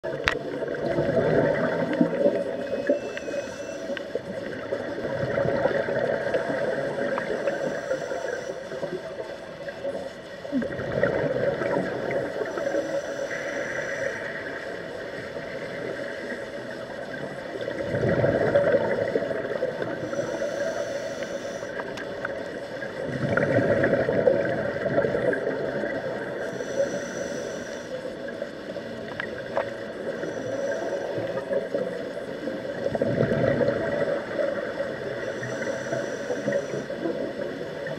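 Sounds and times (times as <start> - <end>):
exhaled bubbles rushing: 0.0 - 3.1, 4.2 - 7.8, 9.9 - 12.7, 17.0 - 20.1, 22.1 - 26.4, 31.2 - 35.3
regulator hiss: 6.5 - 9.4, 12.3 - 15.7, 19.9 - 21.9, 26.4 - 28.7, 35.2 - 37.0.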